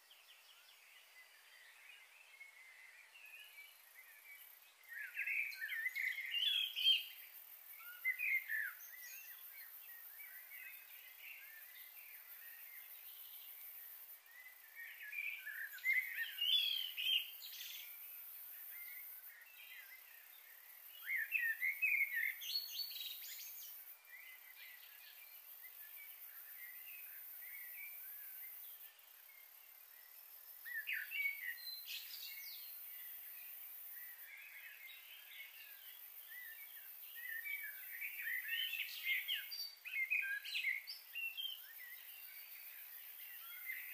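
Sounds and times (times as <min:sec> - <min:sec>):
faint high hiss: 0:00.0 - 0:43.9
birds chirping and singing: 0:03.4 - 0:07.2, 0:14.3 - 0:28.8, 0:30.6 - 0:33.2, 0:34.0 - 0:43.9.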